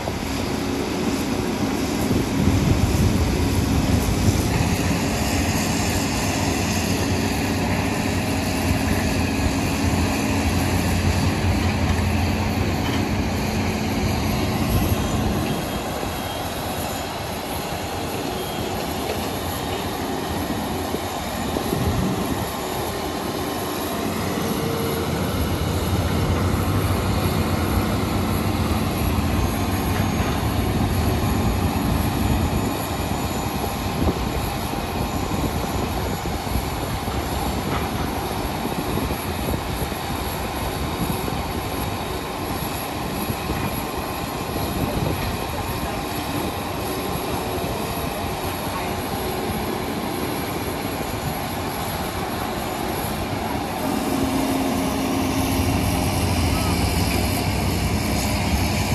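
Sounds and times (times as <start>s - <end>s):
excavator diesel engine: 0.0s - 35.3s, 41.4s - 58.9s.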